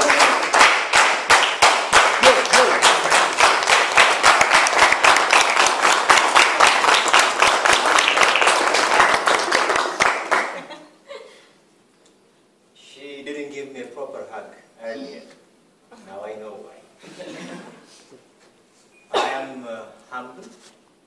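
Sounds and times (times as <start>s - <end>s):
audience applauding: 0.0s - 10.7s
close hand clapping: 0.0s - 10.7s.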